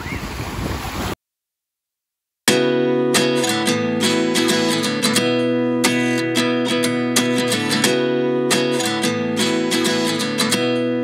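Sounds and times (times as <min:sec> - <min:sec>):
wind on microphone: 0:00.0 - 0:01.2
acoustic guitar strumming: 0:02.5 - 0:11.0.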